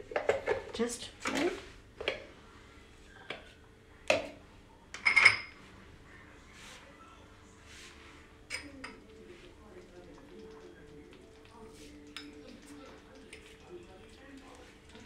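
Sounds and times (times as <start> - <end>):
ringing ceramic clink: 5.0 - 5.6.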